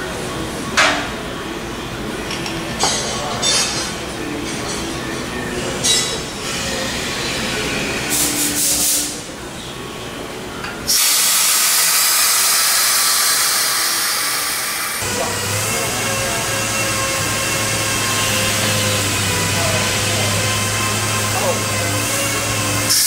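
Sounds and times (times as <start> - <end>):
compressed air hissing: 8.1 - 9.3, 10.9 - 16.0.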